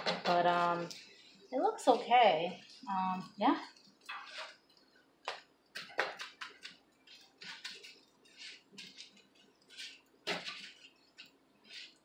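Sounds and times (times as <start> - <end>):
wooden spatulas scraping on griddle: 4.1 - 4.6, 6.5 - 12.0.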